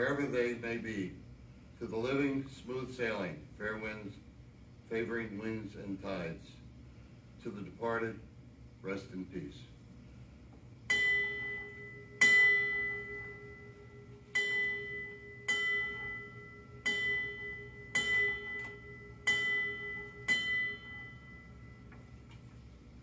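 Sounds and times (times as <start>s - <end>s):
ship's bell ringing: 10.9s - 22.3s.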